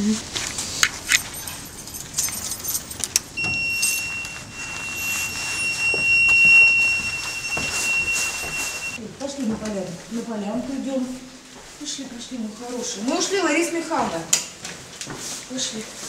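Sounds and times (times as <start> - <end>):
door being pulled open: 1.5 - 9.0
high electronic beep: 3.4 - 9.0.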